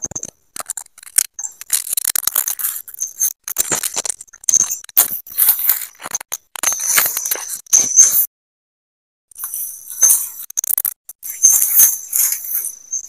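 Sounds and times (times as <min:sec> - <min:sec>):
brush rustling and snapping: 0:00.2 - 0:07.6.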